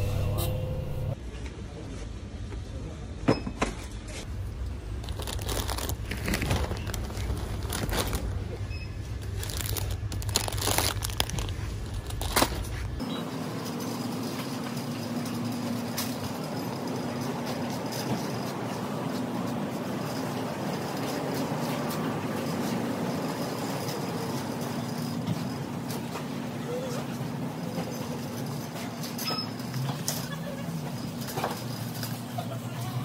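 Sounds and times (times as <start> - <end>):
plastic packaging crinkling: 5.0 - 8.4, 9.2 - 12.6.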